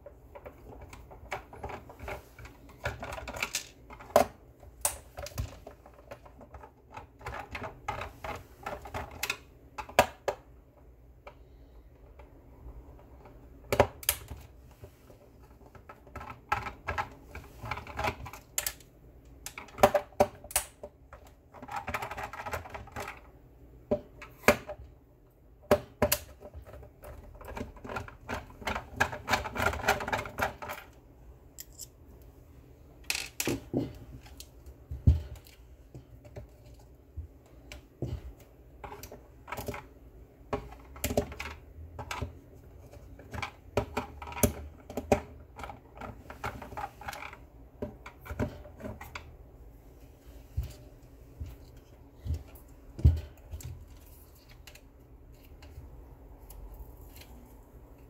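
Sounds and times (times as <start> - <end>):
plastic parts clicking and knocking: 0.0 - 31.9, 33.0 - 49.5, 50.5 - 58.0.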